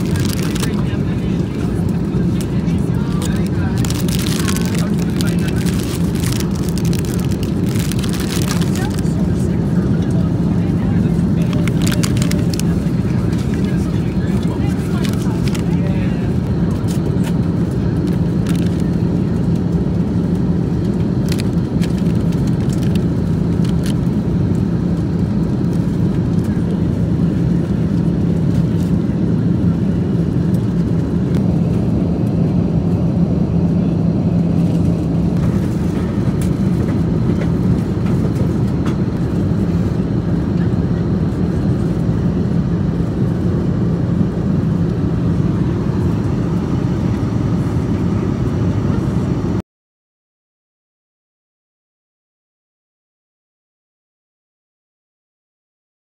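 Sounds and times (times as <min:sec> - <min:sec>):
airliner cabin engine rumble: 0:00.0 - 0:49.6.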